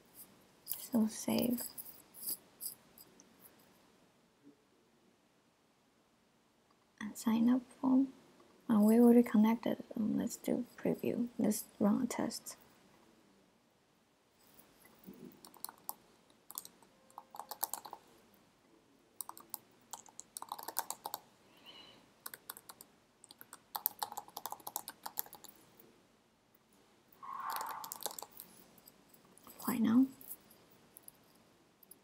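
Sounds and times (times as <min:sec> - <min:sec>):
keyboard typing: 0:15.2 - 0:18.0, 0:19.2 - 0:21.2, 0:22.2 - 0:25.6, 0:27.5 - 0:28.5.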